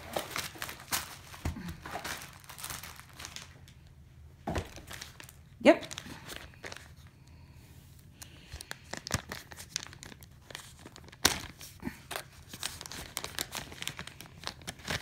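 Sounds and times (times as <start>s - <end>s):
paper and plastic bag tearing: 0.0s - 3.7s, 8.6s - 15.0s.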